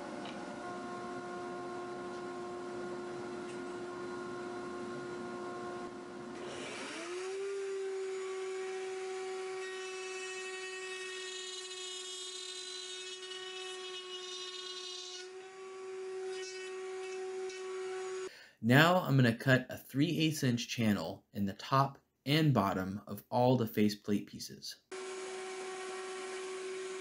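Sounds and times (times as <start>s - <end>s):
router motor whining: 0.1s - 18.3s, 24.9s - 27.0s
router bit rasping through wood: 6.4s - 18.3s, 24.9s - 27.0s.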